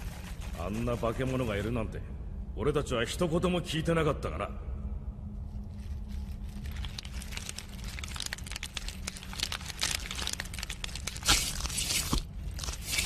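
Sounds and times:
rapid insect clicking and crackling: 6.6 - 11.6.

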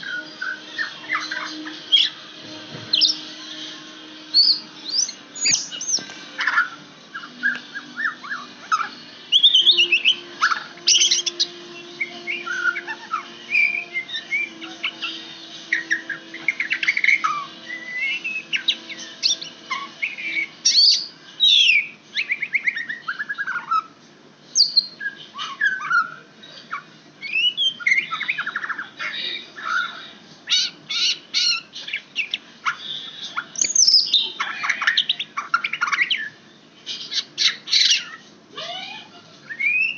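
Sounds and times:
bird singing whistled phrases: 27.2 - 28.6, 39.5 - 39.9.

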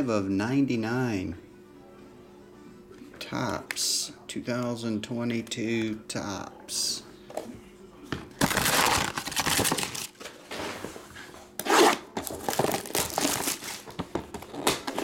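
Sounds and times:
cardboard lid tearing: 8.4 - 10.1, 11.6 - 13.9
plastic wrap crinkling and tearing: 8.4 - 10.2, 12.2 - 15.0.

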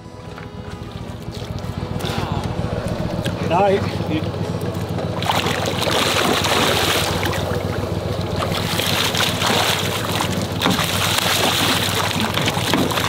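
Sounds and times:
steady low hum: 0.0 - 13.0
fish thrashing and splashing: 4.1 - 13.0.

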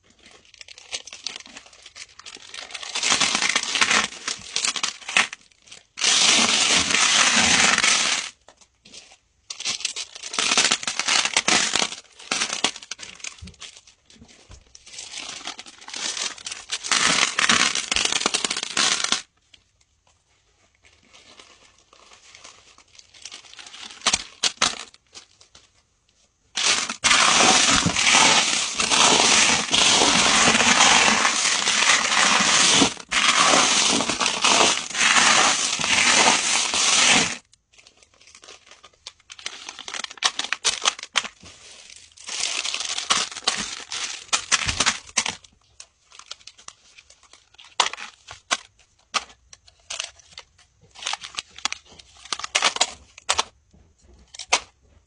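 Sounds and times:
plastic pouches crinkling: 0.0 - 19.8, 20.6 - 25.8, 26.5 - 53.6
stones rattling as poured: 26.6 - 37.4.

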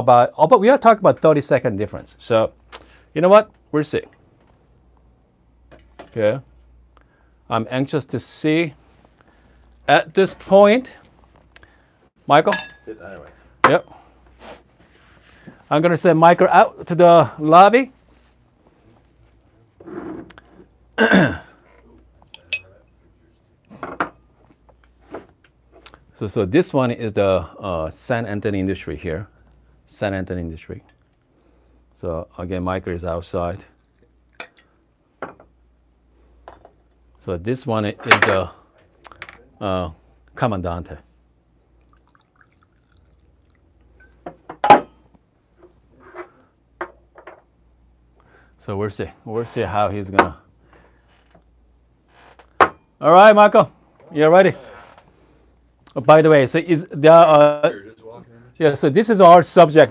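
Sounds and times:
glasses clinking: 12.5 - 12.9, 22.4 - 22.7, 34.4 - 34.7, 38.1 - 38.5
small glasses clinking: 12.5 - 13.9, 22.3 - 22.7, 34.4 - 34.7, 38.1 - 38.4, 39.1 - 39.4, 44.0 - 45.0
coffee pouring into glass: 41.8 - 43.7.

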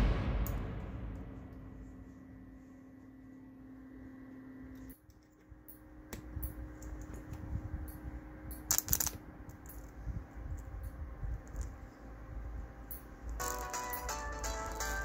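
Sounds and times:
faint steady hum: 0.0 - 15.0
electric clicks and crackles: 8.5 - 11.8.

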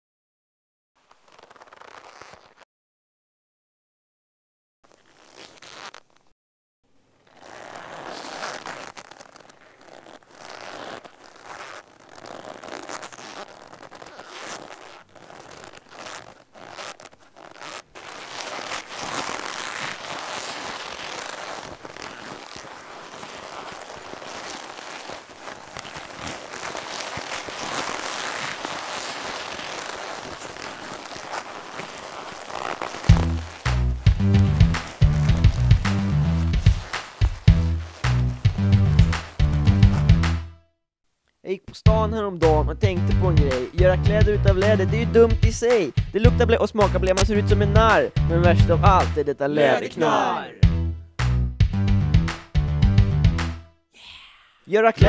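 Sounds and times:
leather jacket creaking: 1.0 - 2.7, 4.8 - 6.4, 7.2 - 40.4, 46.9 - 47.2.

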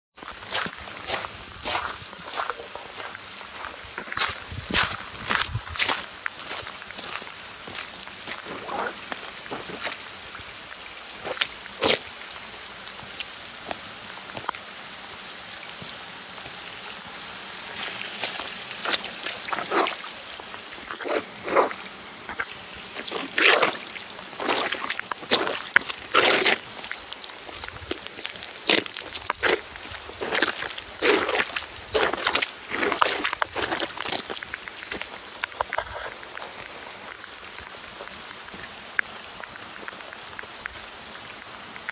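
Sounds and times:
steady rain: 0.1 - 41.9
water running along a kerb: 0.1 - 41.9
sneakers splashing in water: 0.2 - 12.2, 17.6 - 38.8.

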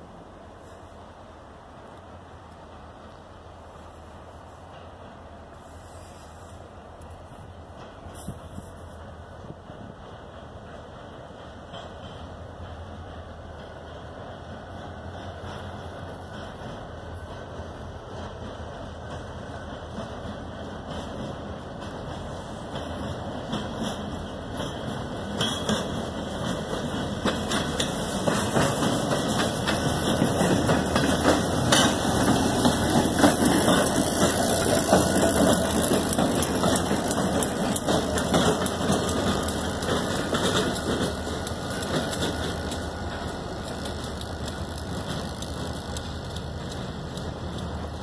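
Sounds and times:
wheels clicking and clanking on rails: 0.0 - 48.0
locomotive engines running: 0.2 - 48.0.

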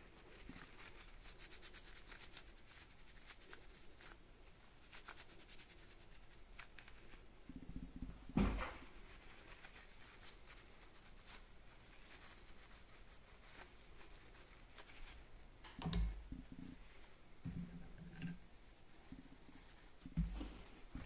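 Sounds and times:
faint clicks and scrapes: 16.3 - 21.0.

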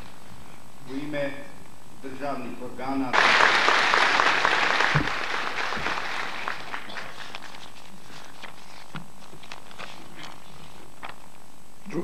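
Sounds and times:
audience applause: 3.2 - 7.3.

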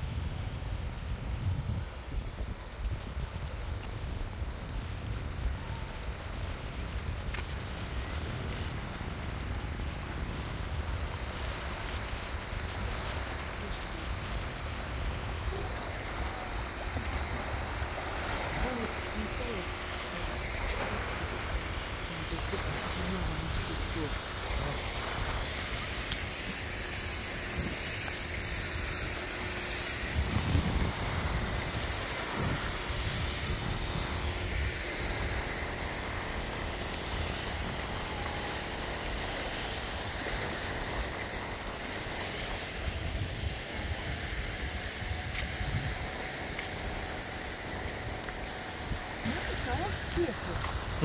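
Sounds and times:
continuous outdoor hiss: 0.0 - 51.0.

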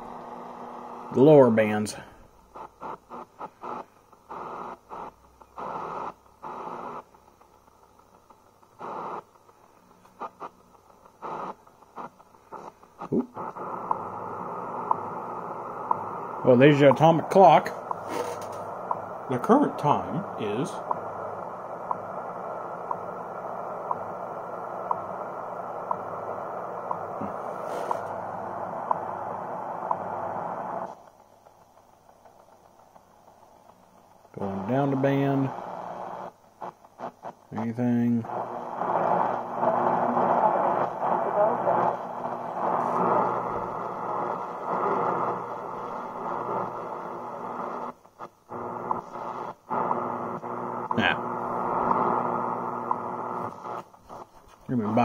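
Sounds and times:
radio time signal ticks: 2.5 - 53.9
shortwave hiss: 11.2 - 31.1.

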